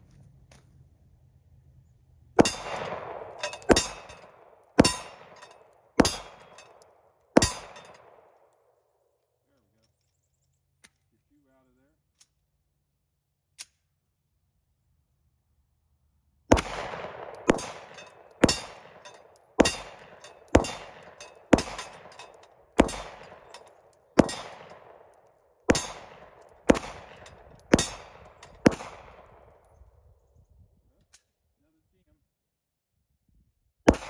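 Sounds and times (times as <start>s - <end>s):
bullets ringing on steel targets: 2.4s - 8.2s, 16.6s - 25.0s, 25.7s - 29.0s
pistol shots: 2.4s - 8.4s, 16.5s - 29.7s.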